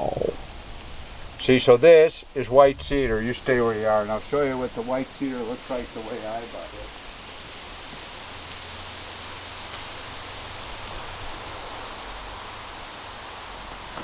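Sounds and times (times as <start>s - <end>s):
outdoor hiss: 0.0s - 14.0s
low rumble: 2.2s - 5.2s.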